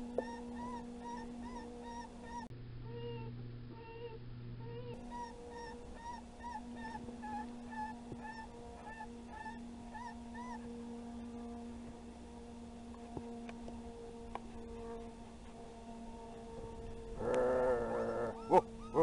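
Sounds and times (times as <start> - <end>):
low hum: 0.0 - 19.0
high yelping calls: 0.2 - 10.6, 17.2 - 19.0.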